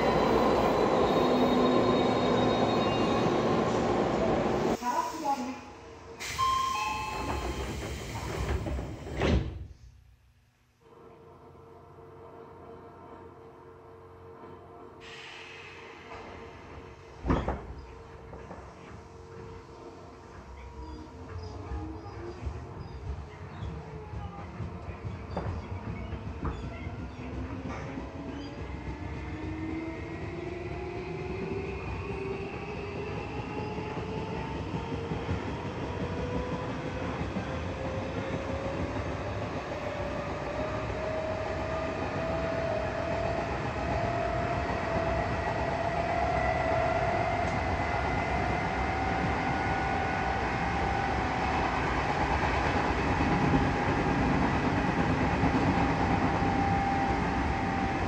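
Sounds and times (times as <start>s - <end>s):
wheels running on rail: 17.8s - 30.2s.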